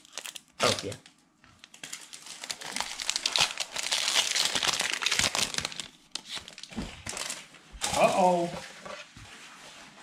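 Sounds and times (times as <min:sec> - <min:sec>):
plastic wrapper crinkling: 0:00.0 - 0:07.5.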